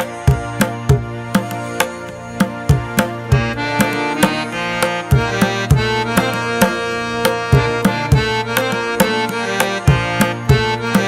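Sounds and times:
drum strikes: 0.0 - 11.0
sustained melodic tones: 0.0 - 11.0.

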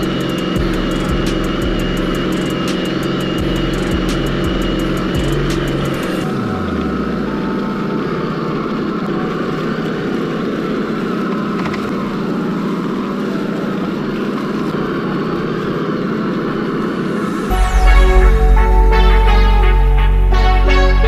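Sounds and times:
rc car drivetrain whirring: 0.0 - 17.5
rc car tyres crunching leaves: 6.3 - 17.3.

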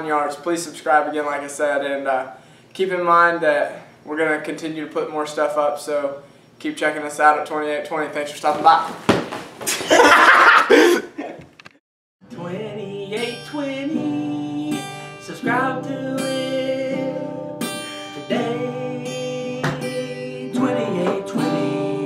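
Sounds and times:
scuffling: 8.4 - 10.3
loud laughter: 9.8 - 11.4
strummed acoustic guitar: 12.2 - 22.0
person singing: 12.3 - 22.0.

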